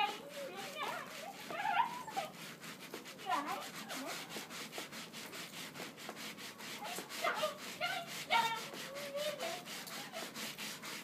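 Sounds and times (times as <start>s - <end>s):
fast regular scratching: 0.0s - 11.0s
dogs whining: 1.3s - 2.3s.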